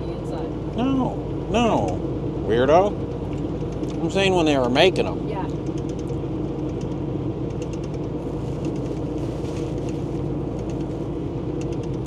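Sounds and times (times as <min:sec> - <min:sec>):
diesel truck engine droning: 0:00.0 - 0:12.0
road noise: 0:00.0 - 0:12.0.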